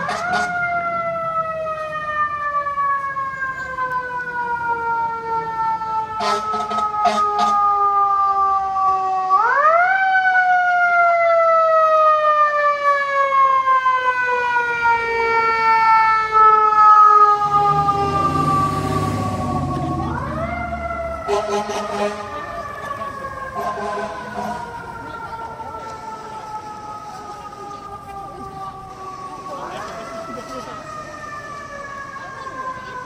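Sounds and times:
air horn blasts: 0.0 - 0.6, 6.2 - 7.6, 21.1 - 22.5, 23.6 - 24.7
fire engine mechanical siren: 0.0 - 33.0.

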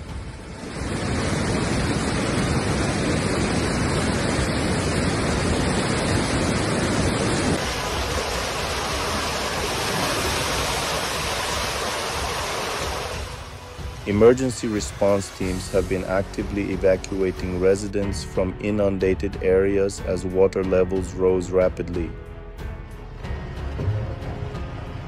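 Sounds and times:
floodwater rushing: 0.0 - 17.9.

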